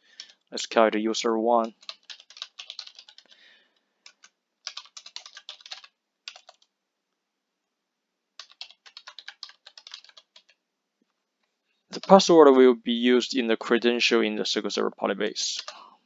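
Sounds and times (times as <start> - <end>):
typing on a keyboard: 0.2 - 0.5, 1.6 - 6.7, 8.4 - 10.6, 12.0 - 12.3, 15.5 - 15.8.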